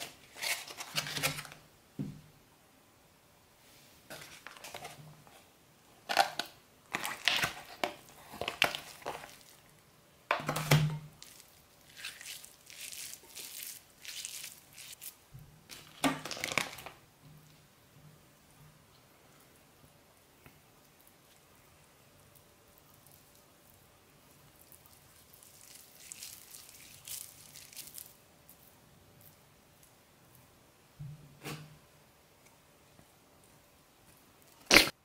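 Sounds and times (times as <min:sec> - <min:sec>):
plastic packaging crinkling: 0:00.0 - 0:01.6, 0:04.1 - 0:05.0, 0:06.0 - 0:09.7, 0:10.4 - 0:17.0, 0:25.1 - 0:28.2
meat squishing: 0:06.1 - 0:09.8, 0:11.2 - 0:16.9, 0:22.7 - 0:29.3.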